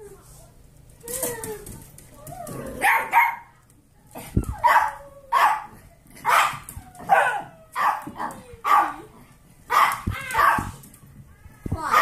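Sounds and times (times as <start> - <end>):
small dogs barking: 2.8 - 3.5, 4.6 - 9.0, 9.7 - 10.7.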